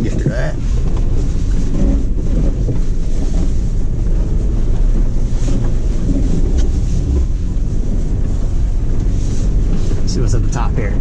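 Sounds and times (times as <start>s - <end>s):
truck engine and tyres rumbling: 0.0s - 11.0s.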